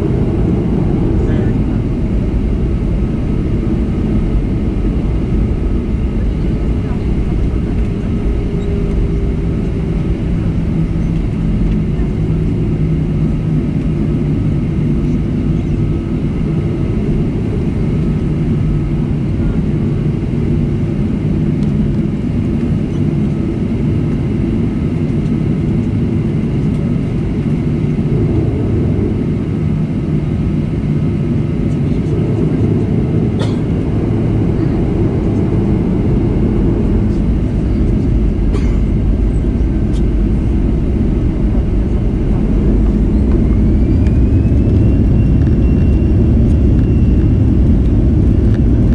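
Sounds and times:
jet engines rumbling at low thrust: 0.0s - 48.9s.

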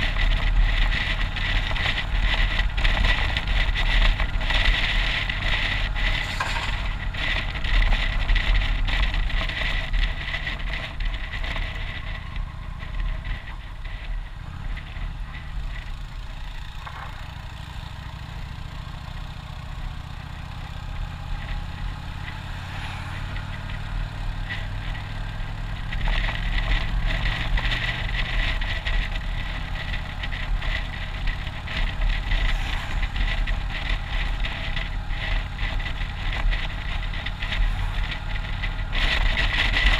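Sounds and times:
motorcycle engine hum: 0.0s - 39.9s
wind rushing: 5.8s - 8.3s, 31.9s - 34.7s.

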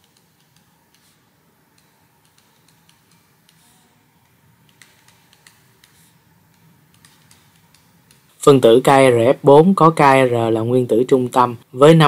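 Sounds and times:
stylus tapping a drawing tablet: 0.0s - 8.7s
faint room hum: 0.0s - 12.0s.

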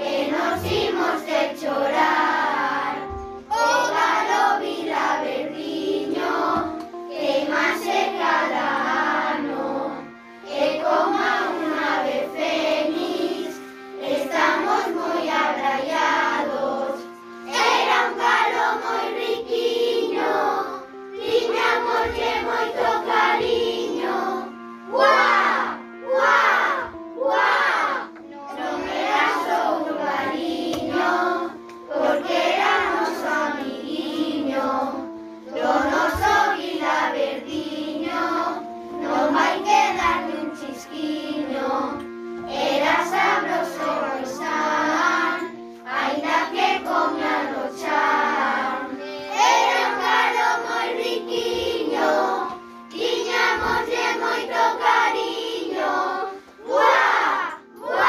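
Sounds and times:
children singing: 0.0s - 58.0s
instrumental backing: 0.0s - 58.0s.

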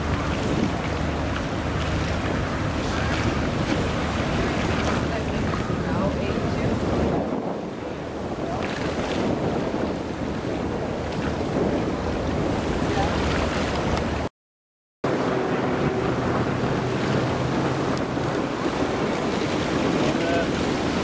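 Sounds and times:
water noise: 0.0s - 14.3s, 15.0s - 21.0s
wind buffeting microphone: 0.0s - 14.3s, 15.1s - 21.0s
ship engines droning: 15.1s - 21.0s.

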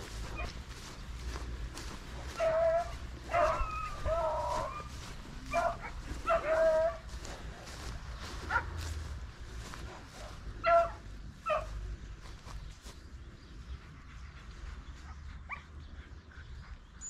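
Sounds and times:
hounds baying: 0.0s - 12.0s.

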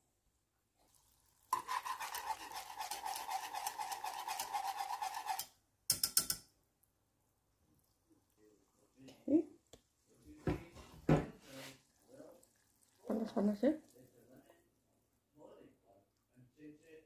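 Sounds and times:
whisk scraping a saucepan: 0.8s - 5.6s, 11.4s - 12.2s
whisk tapping: 1.5s - 6.4s.

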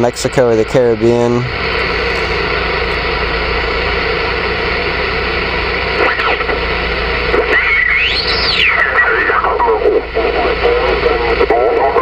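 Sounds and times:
radio static hiss: 0.0s - 12.0s
garbled radio voice: 6.0s - 6.6s, 7.3s - 12.0s.

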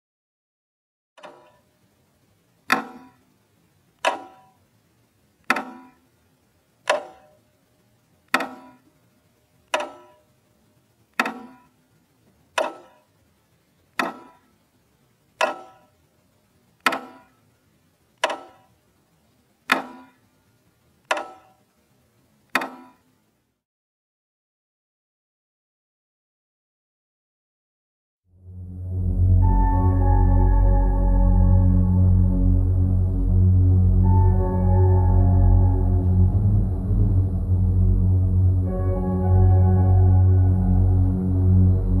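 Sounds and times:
clock ticking: 1.2s - 1.8s, 2.5s - 4.7s, 5.4s - 6.2s, 6.8s - 9.0s, 9.6s - 10.3s, 11.0s - 14.6s, 15.3s - 16.1s, 16.7s - 18.8s, 19.6s - 20.4s, 21.0s - 21.7s, 22.4s - 23.2s.

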